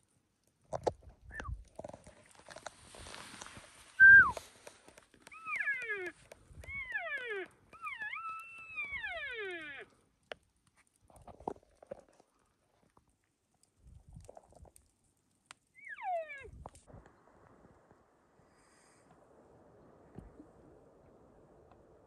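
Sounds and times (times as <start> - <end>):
faint rustles: 0.8 - 6.9.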